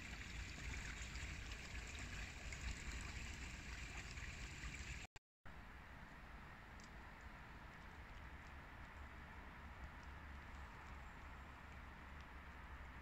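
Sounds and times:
creek trickling over stones: 0:00.0 - 0:05.1, 0:06.8 - 0:13.0.

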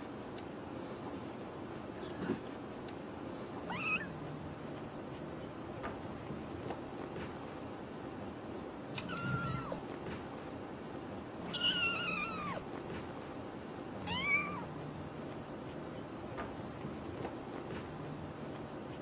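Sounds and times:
kitten meowing: 0:03.7 - 0:04.1, 0:09.0 - 0:09.8, 0:11.5 - 0:12.6, 0:14.0 - 0:14.7.

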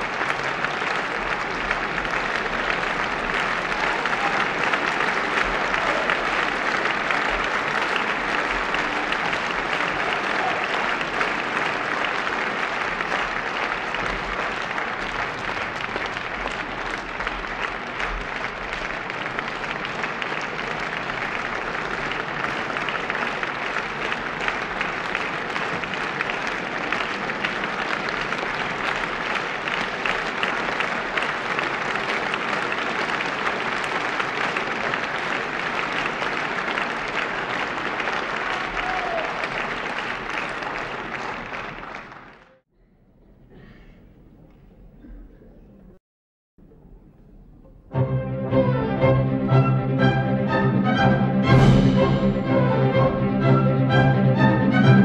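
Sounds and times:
audience applauding: 0:00.0 - 0:42.6.

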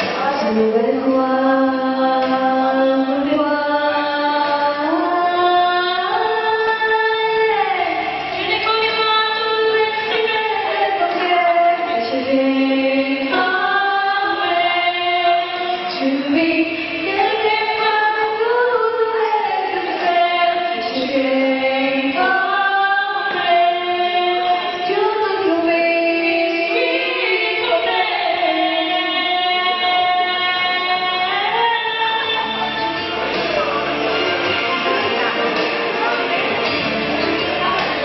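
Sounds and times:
women singing in harmony: 0:00.0 - 0:38.0.

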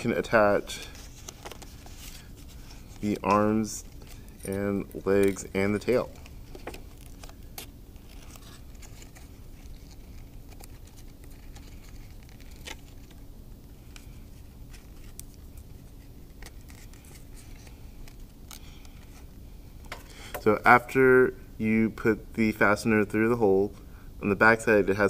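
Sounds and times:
paper rustling: 0:00.0 - 0:13.2.

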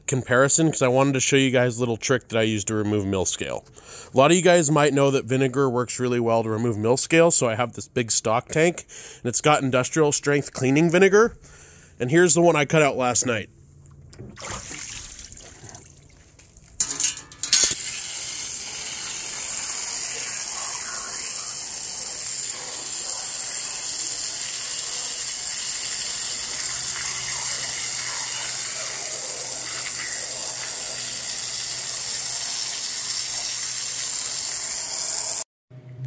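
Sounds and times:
hose spraying water on metal: 0:17.6 - 0:35.4.

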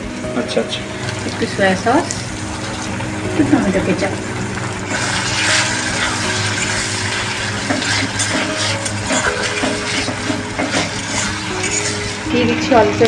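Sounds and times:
vegetables sizzling in a pan: 0:00.0 - 0:13.0
spatula scraping a pan: 0:04.9 - 0:12.4.

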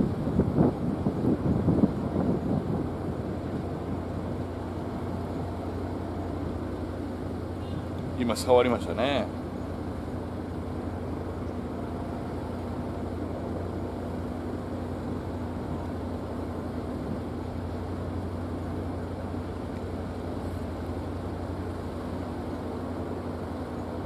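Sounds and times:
engine idling: 0:00.0 - 0:24.0.

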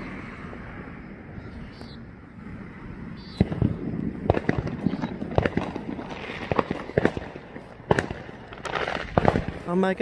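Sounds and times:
fireworks bangs and cracks: 0:03.4 - 0:10.0.

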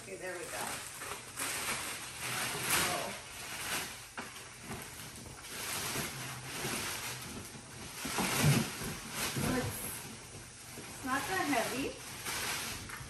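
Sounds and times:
plastic bag rustling and crinkling: 0:00.0 - 0:13.0.

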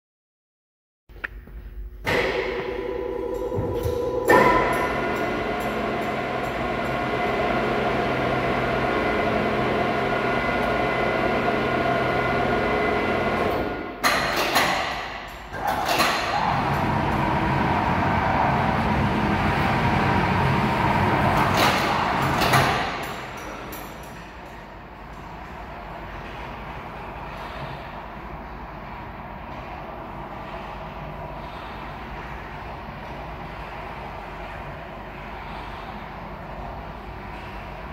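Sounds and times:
crane trolley motor whine: 0:02.0 - 0:14.0, 0:15.5 - 0:27.7
crane hoist motor running: 0:02.0 - 0:37.9.

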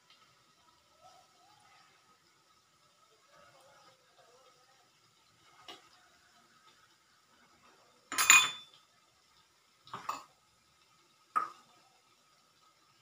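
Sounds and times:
metal spoon clinking on iron pan: 0:08.1 - 0:08.8.

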